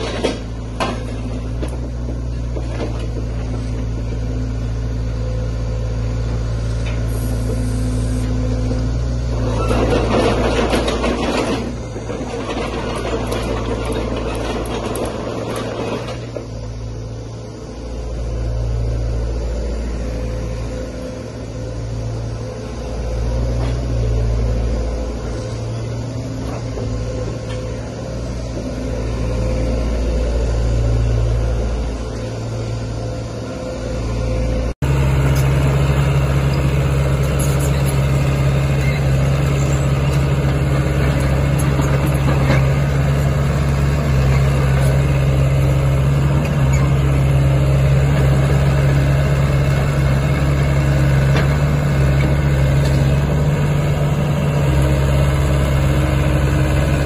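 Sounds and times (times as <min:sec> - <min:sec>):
diesel engine idling: 0:00.0 - 0:57.0
excavator diesel engine working: 0:00.0 - 0:57.0.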